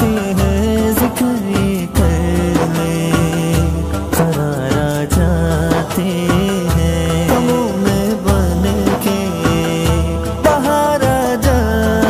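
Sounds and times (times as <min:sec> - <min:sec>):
devotional music with held notes: 0:00.0 - 0:12.0.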